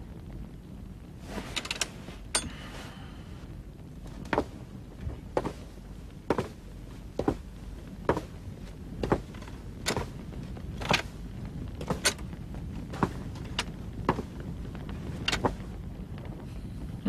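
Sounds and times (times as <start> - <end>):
low steady rumble: 0.0 - 17.0
slow heavy footsteps: 1.0 - 16.4.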